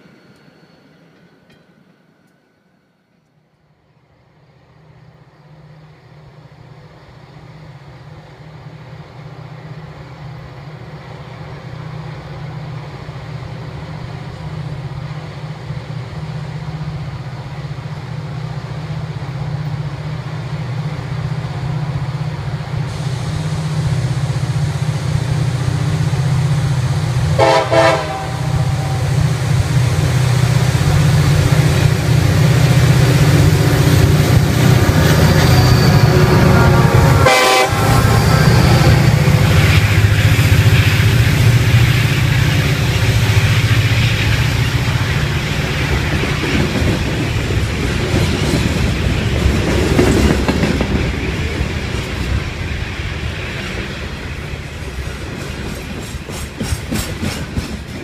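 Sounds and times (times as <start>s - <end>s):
diesel locomotives rumbling: 4.4s - 58.0s
train horn blast: 27.3s - 29.3s, 35.3s - 39.6s.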